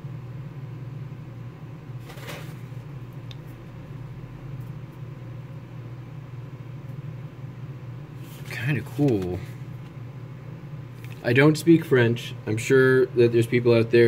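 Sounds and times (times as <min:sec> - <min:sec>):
steady low hum: 0:00.0 - 0:14.0
paper page rustling: 0:02.0 - 0:02.8.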